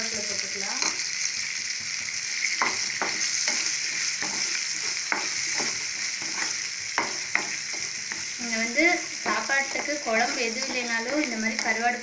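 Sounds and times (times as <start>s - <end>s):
food sizzling in hot oil: 0.0s - 12.0s
wooden spatula scraping pan: 2.6s - 11.9s.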